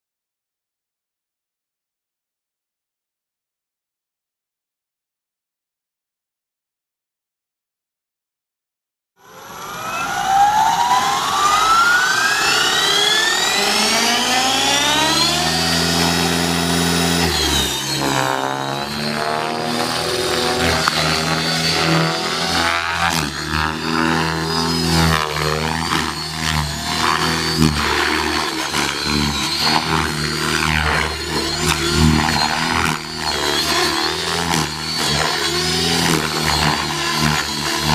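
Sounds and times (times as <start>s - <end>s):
rc helicopter motor whine: 9.2s - 37.9s.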